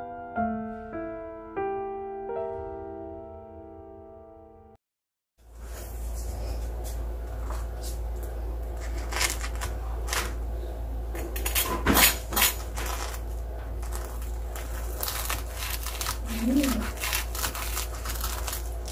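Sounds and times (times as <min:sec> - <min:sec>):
steady low hum: 0:05.4 - 0:18.9
knife cutting crunchy fried bread: 0:08.8 - 0:10.3, 0:11.4 - 0:13.2, 0:13.8 - 0:18.9.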